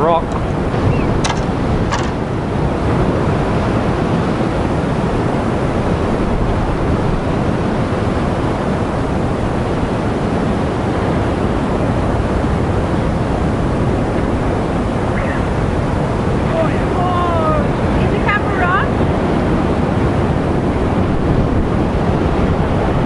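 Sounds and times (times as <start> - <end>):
ocean surf breaking on rocks: 0.0 - 23.0
wind buffeting microphone: 0.0 - 23.0.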